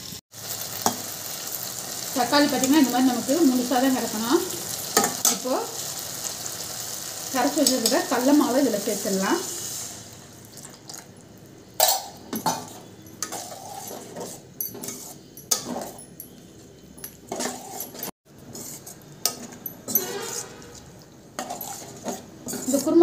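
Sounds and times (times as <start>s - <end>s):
steel spatula scraping a pan: 12.5s - 23.0s.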